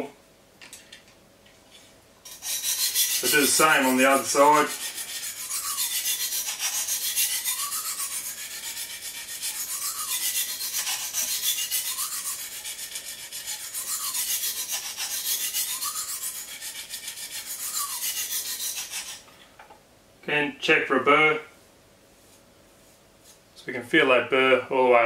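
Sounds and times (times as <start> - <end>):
sharpening stone scraping knife: 2.3 - 19.2.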